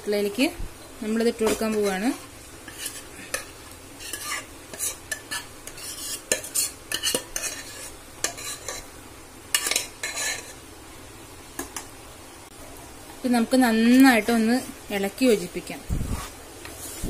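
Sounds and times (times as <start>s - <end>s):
faint sizzle: 0.0s - 17.0s
metal spoon scraping pans: 1.4s - 8.9s, 9.5s - 10.6s.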